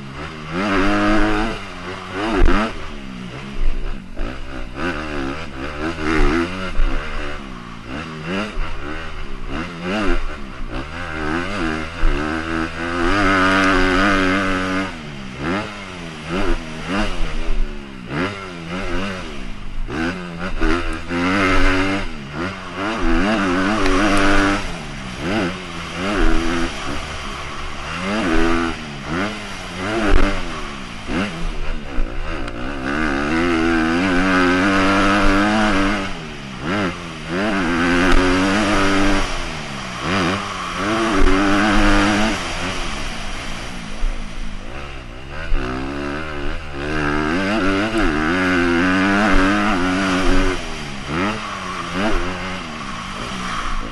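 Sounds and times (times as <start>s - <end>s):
dirt bike engine revving: 0.0s - 53.9s.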